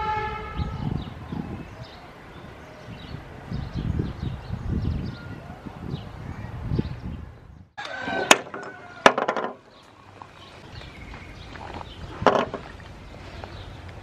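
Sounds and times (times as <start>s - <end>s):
plastic pipe clicking and knocking: 8.3s - 9.6s, 12.2s - 12.7s.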